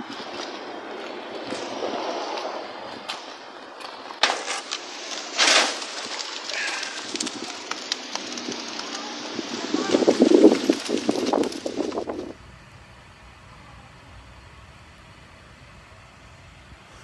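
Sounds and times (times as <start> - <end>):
wet concrete pouring from bucket: 4.3 - 12.3.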